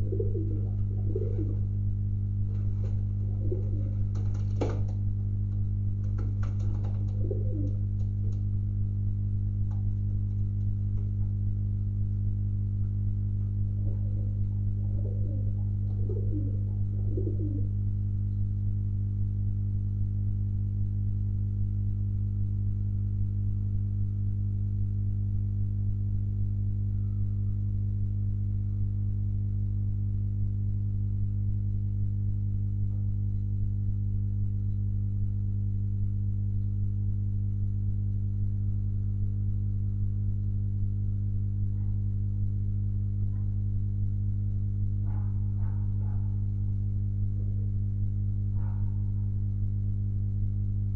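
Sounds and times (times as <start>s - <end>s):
pigeons cooing: 0.0s - 1.7s, 3.2s - 4.2s, 7.0s - 7.8s, 13.8s - 17.8s
low electrical hum: 0.0s - 50.9s.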